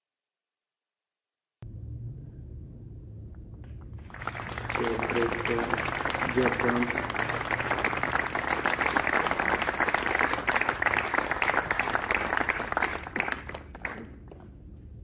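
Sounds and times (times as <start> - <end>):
audience applauding: 3.9 - 14.5.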